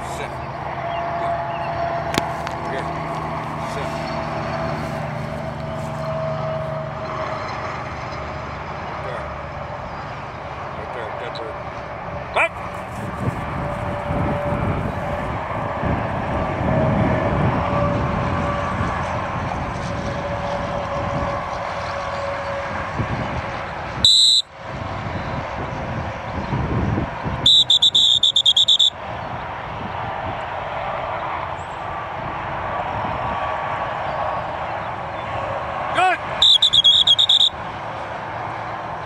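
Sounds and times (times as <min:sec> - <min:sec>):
wind and field noise: 0:00.0 - 0:39.0
short whistle toots: 0:24.0 - 0:24.5, 0:27.4 - 0:29.0, 0:36.4 - 0:37.6
whistle blast: 0:24.0 - 0:24.5, 0:27.4 - 0:29.0, 0:36.4 - 0:37.6.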